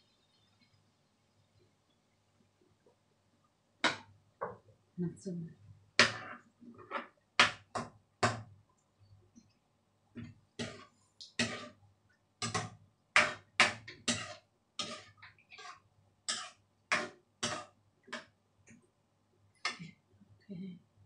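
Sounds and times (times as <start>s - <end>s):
metal ladle scraping frying pan: 10.6s - 11.8s, 12.4s - 17.8s.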